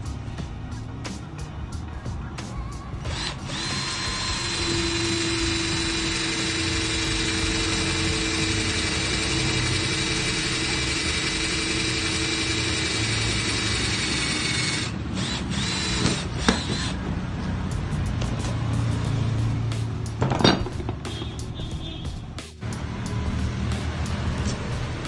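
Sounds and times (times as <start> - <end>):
cordless drill boring through metal: 3.1 - 17.0.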